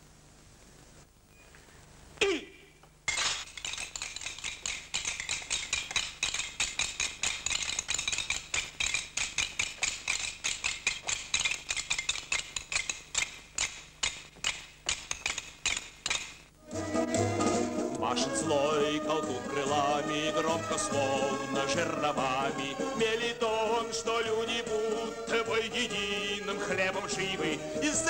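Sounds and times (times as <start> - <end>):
castanets clicking: 3.1 - 16.5.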